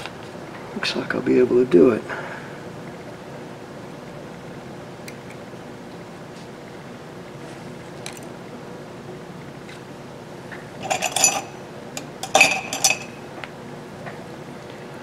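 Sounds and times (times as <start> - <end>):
metal hand tools clinking: 10.8 - 11.6, 12.2 - 13.2.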